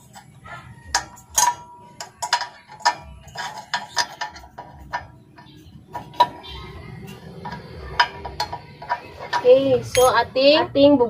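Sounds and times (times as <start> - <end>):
metallic clicks and clinks: 0.0 - 10.2.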